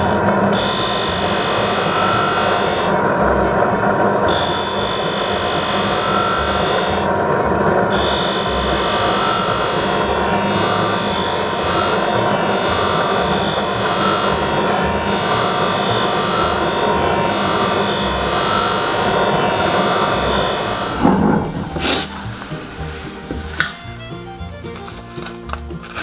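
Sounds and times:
blade grinding on sharpening wheel: 0.0s - 3.0s, 4.3s - 7.1s, 7.9s - 22.8s.

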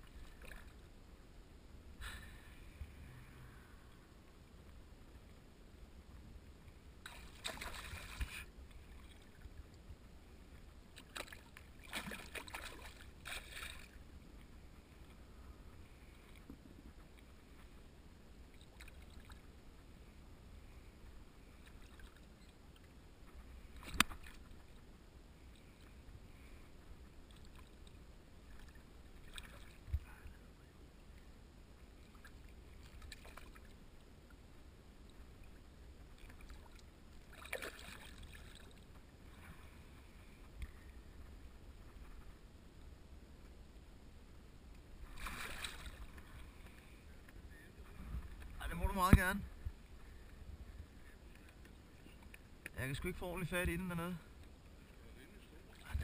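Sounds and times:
fish thrashing and splashing: 7.1s - 8.4s, 11.1s - 13.9s.

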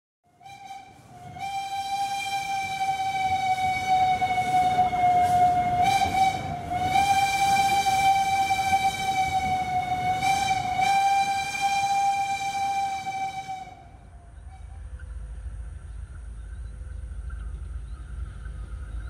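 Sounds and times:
locomotive horn blast: 0.3s - 15.0s
train rumbling: 0.3s - 19.0s.

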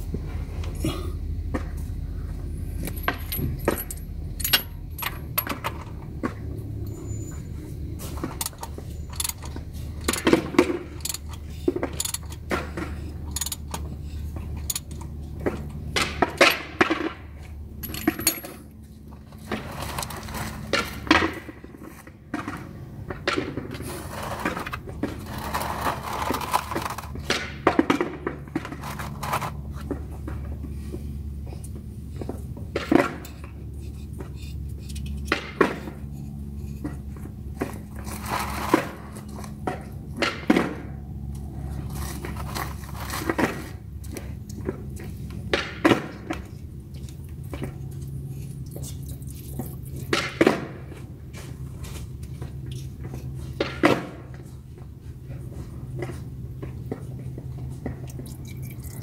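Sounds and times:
metallic tool clicks and clinks: 2.8s - 5.6s, 13.3s - 13.8s.

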